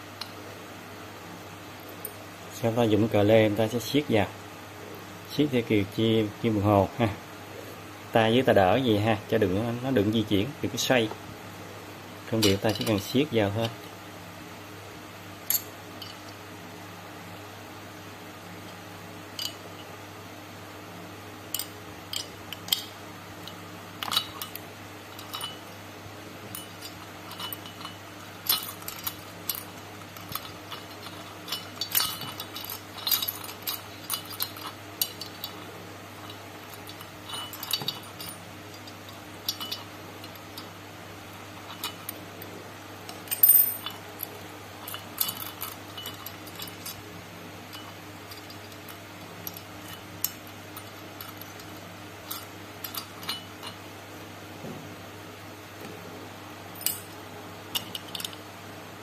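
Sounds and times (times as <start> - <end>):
steady low hum: 0.0 - 59.0
wrench clinking against nut: 26.5 - 35.6, 36.2 - 40.7, 43.1 - 44.0, 44.8 - 47.0, 56.8 - 58.4.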